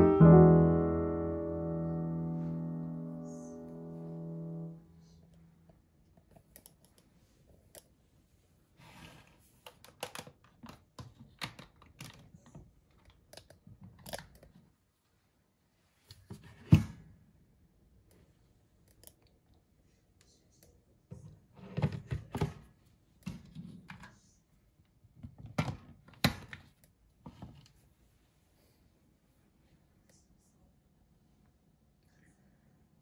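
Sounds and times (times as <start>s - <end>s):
soft piano music: 0.0s - 5.2s.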